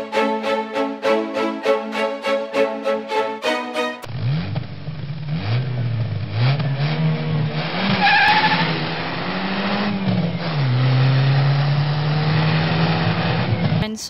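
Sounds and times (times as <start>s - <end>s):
plucked-string music: 0.0s - 4.1s
car engine accelerating: 4.0s - 13.8s.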